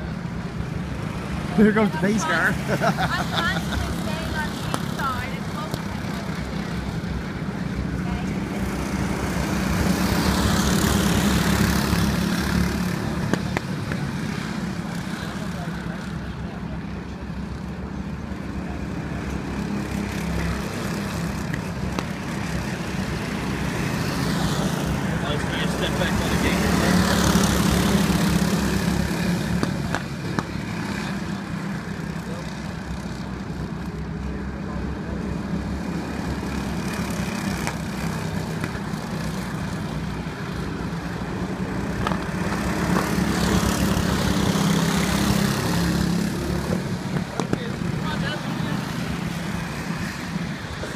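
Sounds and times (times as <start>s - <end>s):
go-kart engines droning: 0.0s - 50.9s.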